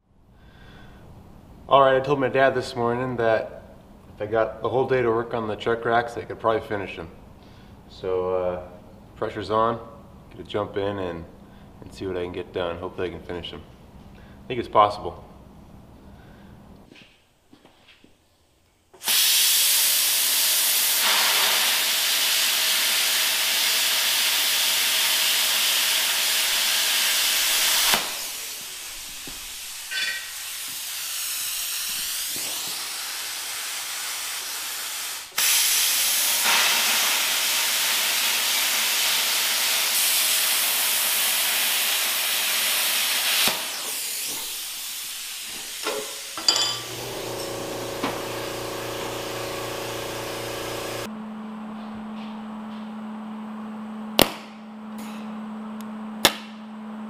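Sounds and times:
metalworking tool hissing: 0:19.0 - 0:51.1.

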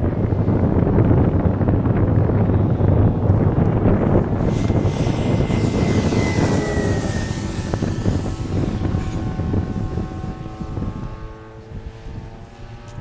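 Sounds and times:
model plane engine passing overhead: 0:00.0 - 0:13.0
wind rumbling on microphone: 0:00.0 - 0:13.0.

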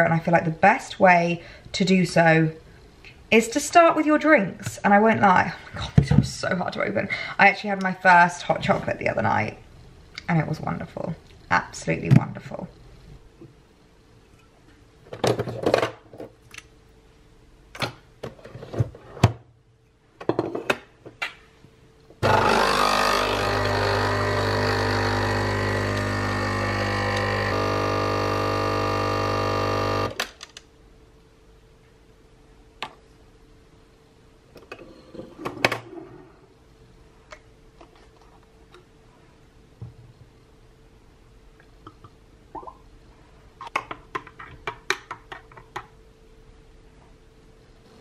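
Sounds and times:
espresso machine pump buzzing: 0:22.2 - 0:30.2.

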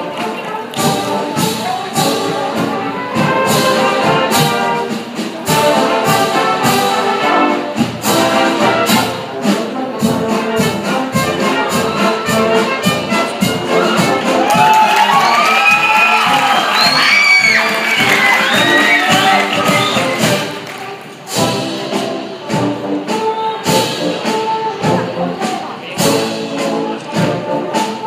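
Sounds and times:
marching brass band playing: 0:00.0 - 0:28.0
marching drums: 0:00.0 - 0:28.0
crowd shouting and cheering: 0:13.9 - 0:21.3.

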